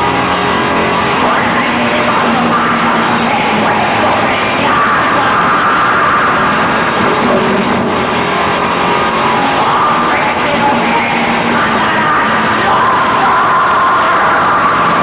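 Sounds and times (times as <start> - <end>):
metal band playing live: 0.0 - 15.0.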